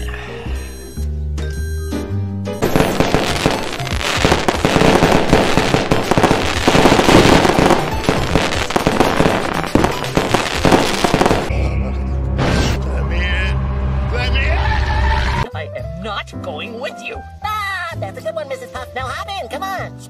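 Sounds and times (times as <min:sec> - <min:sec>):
fireworks cracking and banging: 0:02.6 - 0:11.5.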